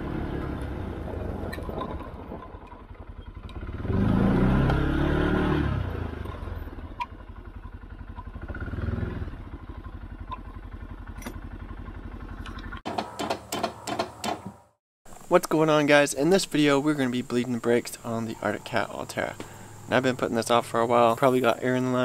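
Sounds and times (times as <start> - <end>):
atv engine running: 0.0 - 12.8.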